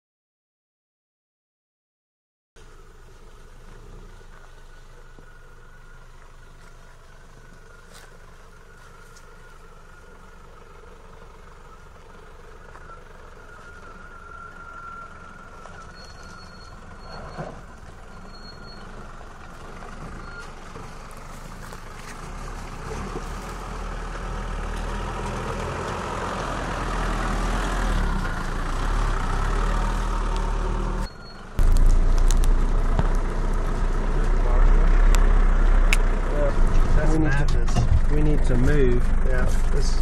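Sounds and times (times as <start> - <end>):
vehicle engine passing by: 2.6 - 40.0.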